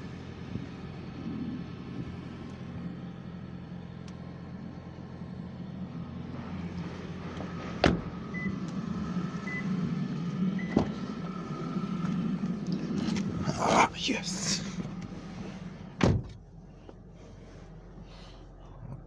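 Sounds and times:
car doors clunking: 7.7 - 8.8, 10.6 - 11.1, 14.8 - 16.4.

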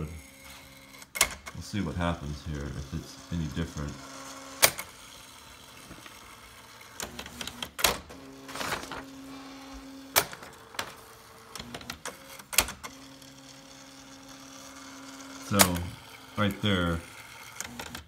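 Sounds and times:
typewriter mechanism clicks: 1.1 - 1.5.

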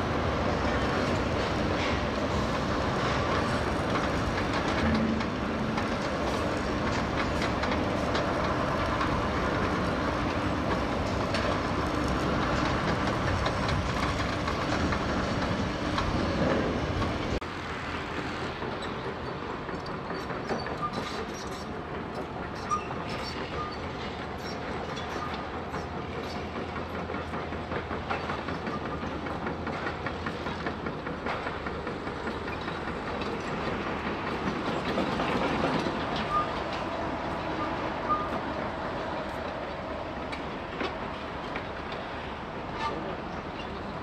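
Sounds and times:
machinery running: 3.0 - 9.9
metallic clanks and knocks: 4.4 - 6.0.

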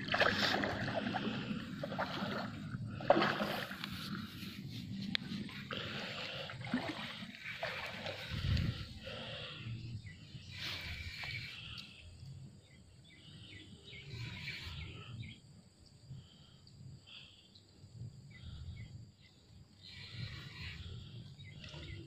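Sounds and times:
steady low rumble: 0.0 - 22.0
birds chirping: 5.7 - 15.5, 18.3 - 22.0.

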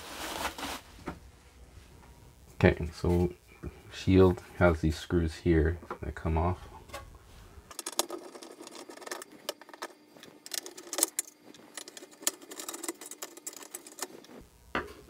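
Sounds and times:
screwdriver and screws clicking: 7.7 - 14.1.

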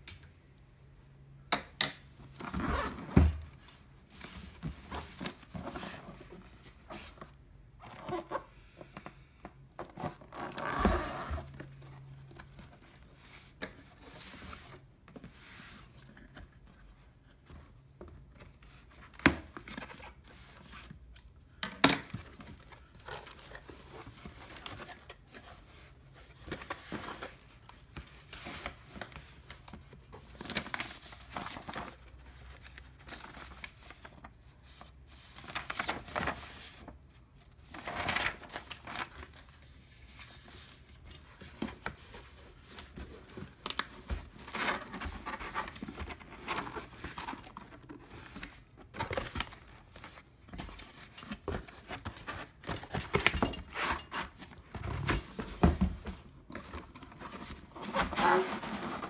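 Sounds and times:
cardboard sliding and scraping: 10.1 - 11.8, 53.7 - 59.0
paper sheet rustling: 30.3 - 36.9, 37.6 - 59.0.

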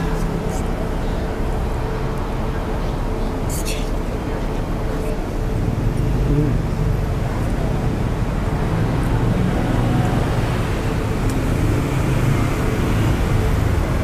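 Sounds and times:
road traffic rumble: 0.0 - 14.0
motorcycles passing: 5.4 - 14.0.

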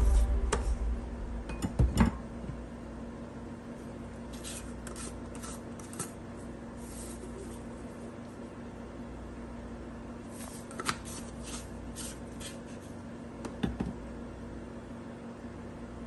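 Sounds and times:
faint steady hum: 0.0 - 16.0
soft rustles and scrapes: 6.8 - 8.5.

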